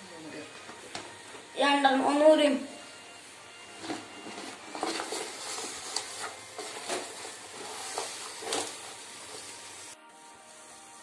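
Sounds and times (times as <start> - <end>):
leaves rustling and crinkling: 3.8 - 10.0.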